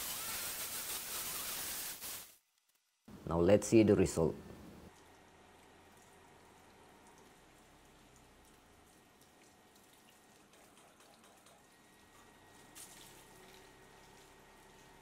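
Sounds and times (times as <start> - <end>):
water dripping: 4.9 - 15.0
water from hose splashing on car: 12.7 - 15.0.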